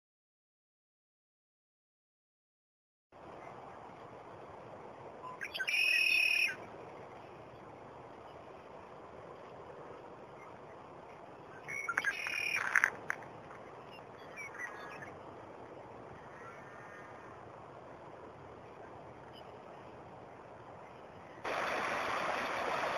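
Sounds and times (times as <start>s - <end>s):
outdoor hiss: 3.2s - 22.9s
bird whistling song: 5.2s - 6.6s, 11.5s - 12.9s, 13.9s - 15.1s.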